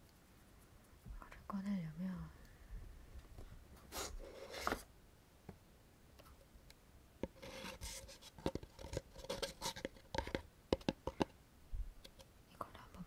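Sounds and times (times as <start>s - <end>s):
paper pulp scraping and rubbing: 7.4s - 9.9s.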